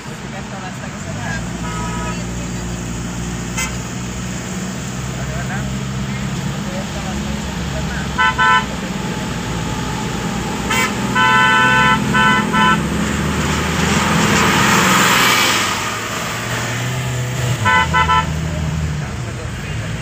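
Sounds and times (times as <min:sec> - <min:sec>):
engine hum and road noise: 0:00.0 - 0:20.0
car horn honking: 0:01.2 - 0:02.6, 0:03.5 - 0:04.0, 0:08.0 - 0:09.0, 0:10.6 - 0:13.3, 0:17.4 - 0:18.7.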